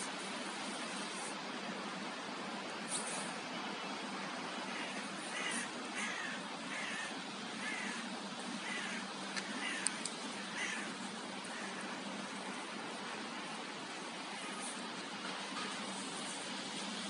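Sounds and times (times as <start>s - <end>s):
background hiss: 0.0s - 17.0s
crow cawing: 4.7s - 12.7s.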